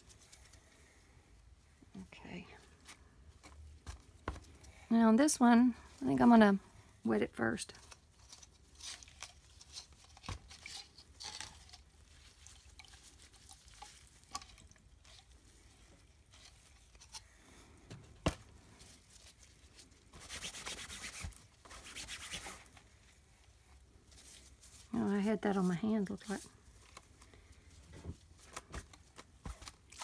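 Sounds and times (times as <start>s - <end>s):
gloved hands handling cloth: 7.7s - 30.0s
cloth rubbing against paper: 20.2s - 22.8s.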